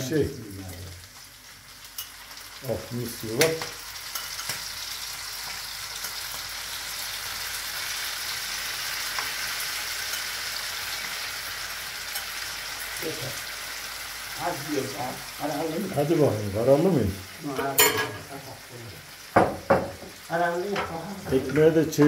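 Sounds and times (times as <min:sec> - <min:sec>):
vegetables sizzling in a frying pan: 0:00.0 - 0:22.0.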